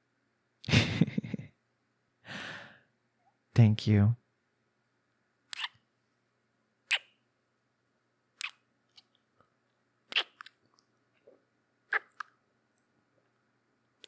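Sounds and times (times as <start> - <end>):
faint lip clicks: 5.5 - 5.8, 8.4 - 9.2, 10.1 - 11.3, 11.9 - 12.4
wet kisses: 5.5 - 5.8, 8.4 - 9.1, 10.1 - 10.6, 12.0 - 12.3.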